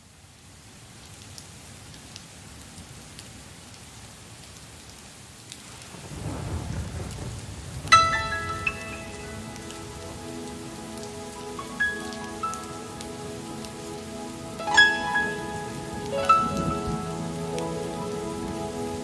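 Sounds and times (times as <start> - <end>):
steady rain: 0.0 - 19.0
thunder rumbling: 5.9 - 19.0
bright music chord: 8.0 - 19.0.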